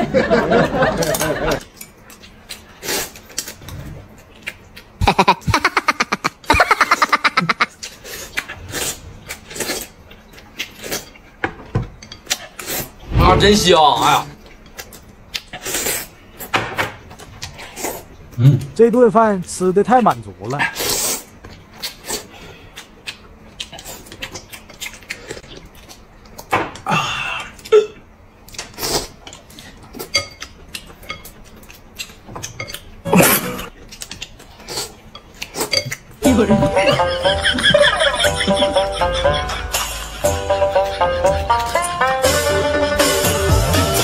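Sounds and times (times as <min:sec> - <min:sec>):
eating sounds: 0:01.0 - 0:11.4, 0:20.6 - 0:37.3
chewing with wet smacks: 0:21.3 - 0:26.5, 0:28.4 - 0:33.0, 0:33.7 - 0:36.2.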